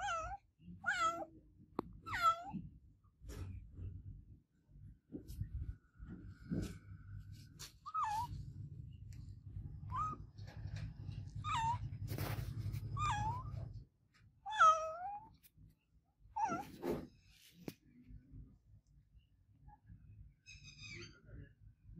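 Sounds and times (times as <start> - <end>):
cat meowing: 0.0 - 1.4, 2.0 - 2.7, 7.8 - 8.4, 9.8 - 10.4, 11.3 - 12.1, 12.8 - 13.8, 14.4 - 15.4, 16.3 - 16.8.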